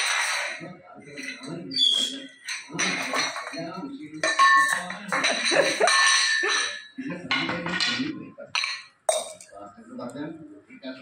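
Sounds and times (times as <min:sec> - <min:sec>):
metal cup clattering on tiles: 0:00.0 - 0:01.6, 0:02.4 - 0:09.5.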